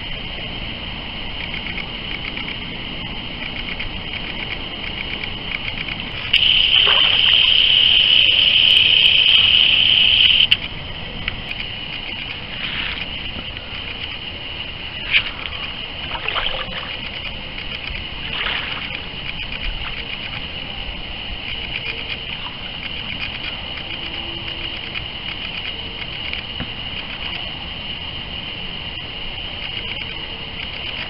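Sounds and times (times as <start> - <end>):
steady high-pitched buzz: 0.0 - 31.0
small waves lapping and splashing: 5.2 - 7.5, 10.6 - 24.2.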